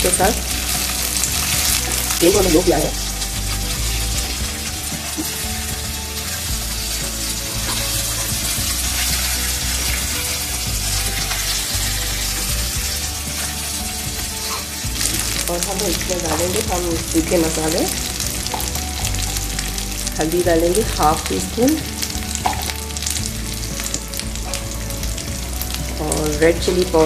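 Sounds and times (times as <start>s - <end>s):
onions sizzling in hot oil: 0.0s - 27.0s
spatula stirring in pan: 0.4s - 20.8s.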